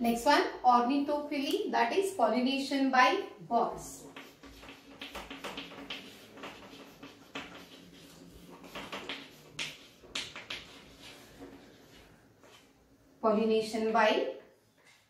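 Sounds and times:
chalk scratching on a blackboard: 0:03.7 - 0:12.8.

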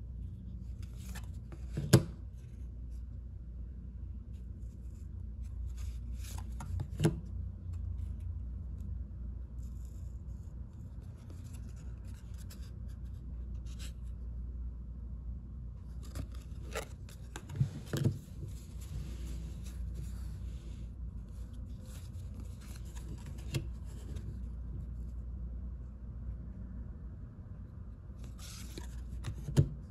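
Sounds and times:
cards sliding against each other: 0:15.9 - 0:24.4, 0:28.2 - 0:29.7.

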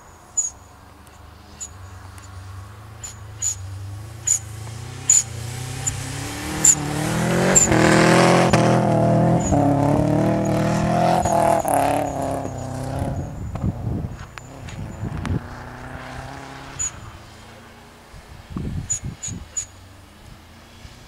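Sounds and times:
car engine revving hard: 0:02.8 - 0:18.0.

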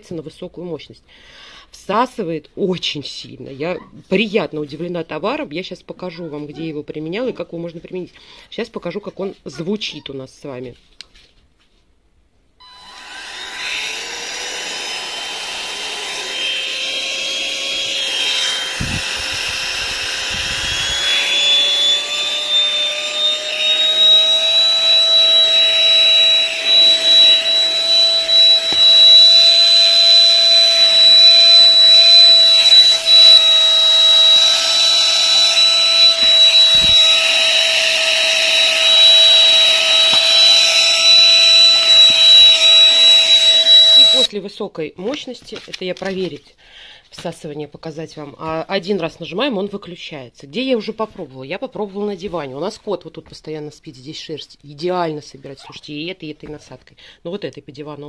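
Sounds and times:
handheld vacuum motor whine: 0:12.6 - 0:44.3.

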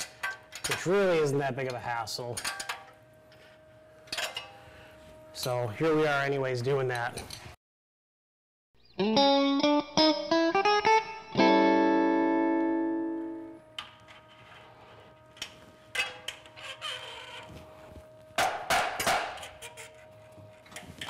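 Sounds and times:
plucked guitar run and chord: 0:09.0 - 0:13.7.

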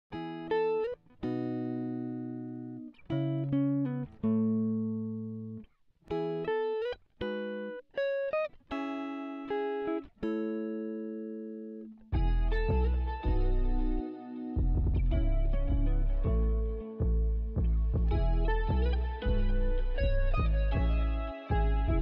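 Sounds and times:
plucked guitar-like melody: 0:00.1 - 0:22.0
heavy chords with bass: 0:12.2 - 0:22.0.

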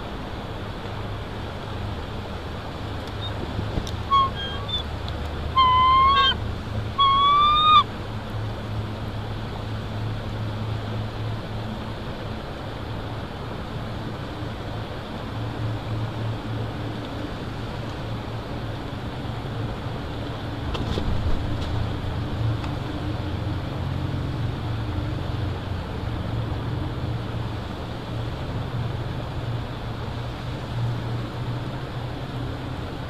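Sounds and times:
wind rushing over microphone: 0:02.5 - 0:08.2.

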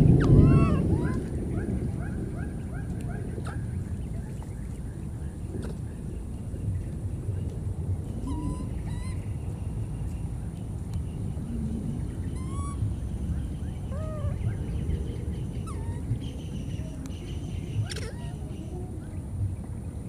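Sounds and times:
baby monkeys calling: 0:00.0 - 0:02.9, 0:08.2 - 0:09.3, 0:12.3 - 0:13.0, 0:13.8 - 0:14.8, 0:15.5 - 0:18.7
steady low rumble: 0:00.0 - 0:20.0.

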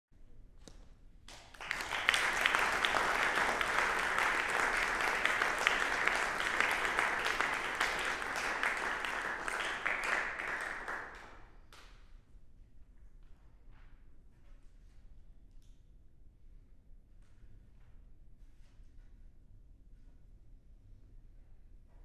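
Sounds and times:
audience applauding: 0:01.3 - 0:11.5.

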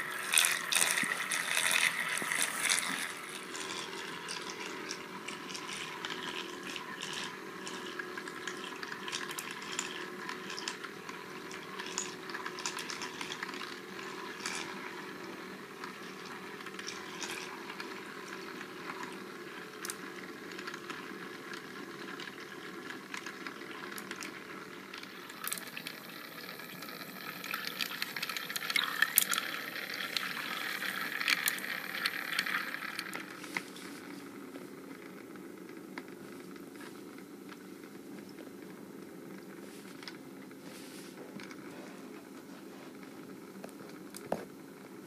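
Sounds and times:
small motor humming: 0:00.0 - 0:34.7.

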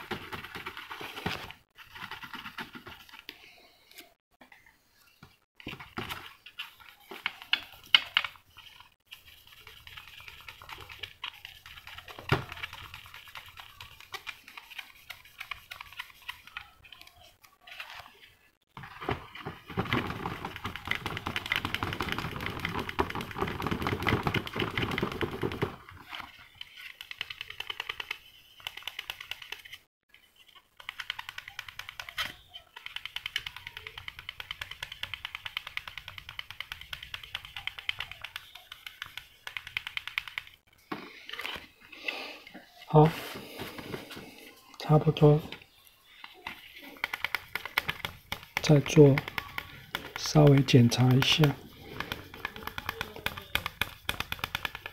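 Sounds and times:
sanding pad scrubbing plastic: 0:08.7 - 0:16.7, 0:46.8 - 0:54.9.

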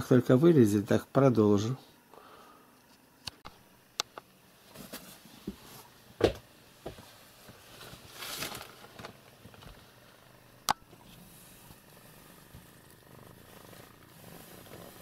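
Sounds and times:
cardboard rustling: 0:07.4 - 0:09.8.

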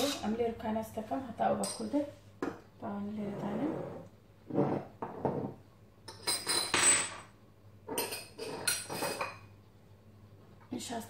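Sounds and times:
glass bottles clinking on countertop: 0:04.6 - 0:07.3, 0:07.9 - 0:09.5.

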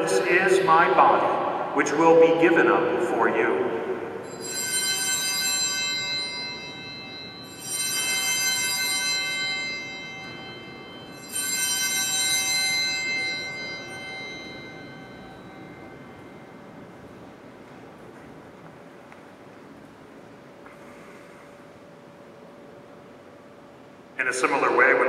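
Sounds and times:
altar bells ringing: 0:04.0 - 0:18.0.

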